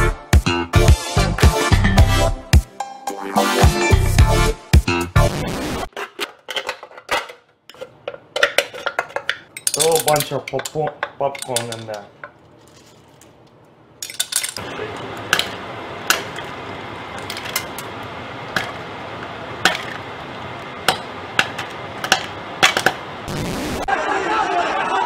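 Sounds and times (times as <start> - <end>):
popcorn kernels popping: 14.0 - 23.1.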